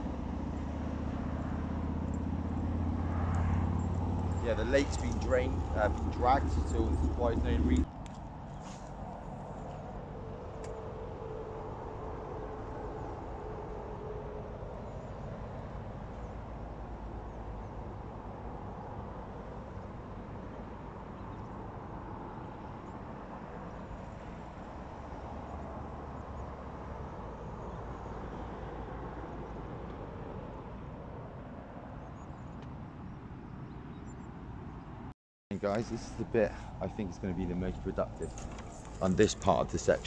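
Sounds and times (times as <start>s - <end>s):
road traffic rumble: 0.0s - 40.0s.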